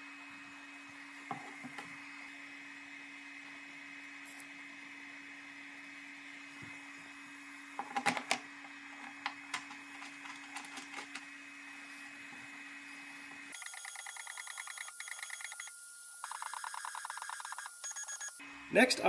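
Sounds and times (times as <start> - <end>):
pulsing electronic whir: 13.5 - 18.4.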